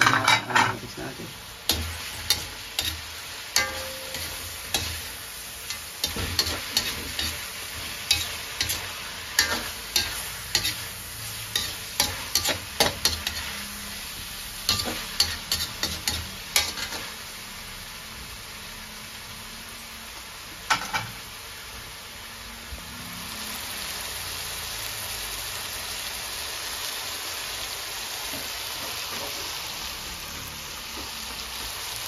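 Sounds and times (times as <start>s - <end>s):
metal spatula scraping a wok: 0.0s - 17.2s
frying sizzle: 0.0s - 32.0s.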